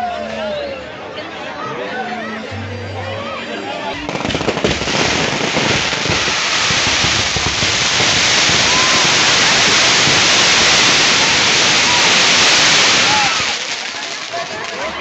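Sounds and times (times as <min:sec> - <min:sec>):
fireworks crackling and banging: 0:04.0 - 0:15.0.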